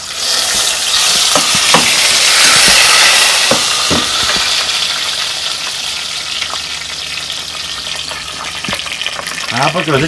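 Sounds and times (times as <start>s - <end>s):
beans sizzling in hot fat: 0.0s - 10.0s.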